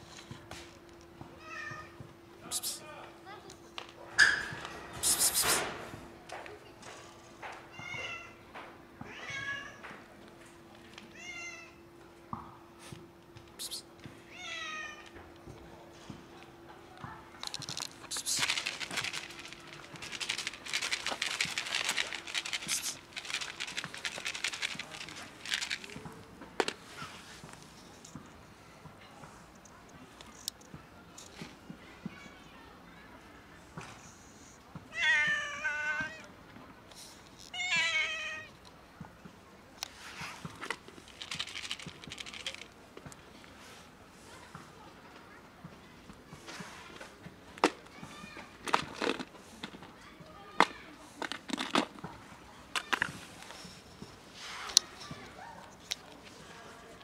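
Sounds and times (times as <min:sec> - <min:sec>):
plastic container crinkling: 0:17.4 - 0:26.8, 0:40.6 - 0:42.8, 0:48.6 - 0:49.9
plastic rattling and rustling: 0:17.4 - 0:26.8, 0:39.8 - 0:43.1, 0:47.6 - 0:50.0, 0:50.6 - 0:52.1, 0:52.7 - 0:56.4.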